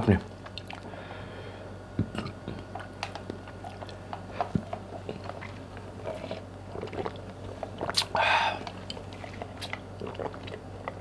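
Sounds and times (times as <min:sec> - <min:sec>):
chewing with wet mouth clicks: 0:00.4 - 0:00.9, 0:02.2 - 0:11.0
person sipping drink: 0:03.7 - 0:11.0.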